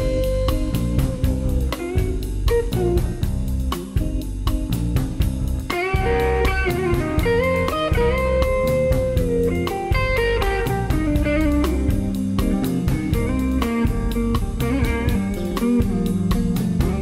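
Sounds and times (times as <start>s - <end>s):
electric guitar solo: 0.0s - 3.2s, 5.7s - 17.0s
bass guitar: 0.0s - 17.0s
steady drum beat: 0.0s - 17.0s.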